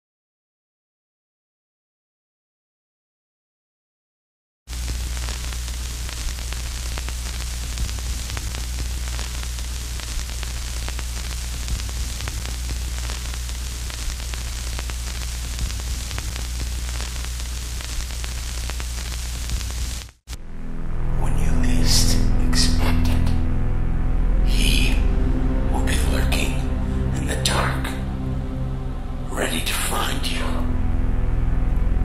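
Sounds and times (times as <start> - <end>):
film hiss: 4.7 - 20.2
faint crackles and pops: 4.7 - 20.4
low hum: 4.7 - 32.0.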